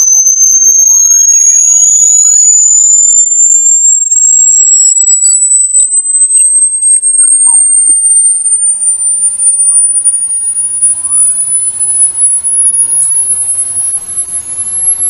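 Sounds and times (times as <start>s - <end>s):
high-pitched rising electronic whistle: 0.0s - 15.0s
faint short chirps: 8.2s - 15.0s.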